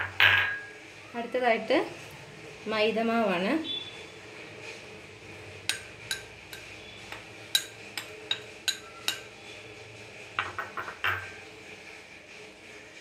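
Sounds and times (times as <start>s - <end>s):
spoon clinking against glass bowl: 5.7s - 9.4s.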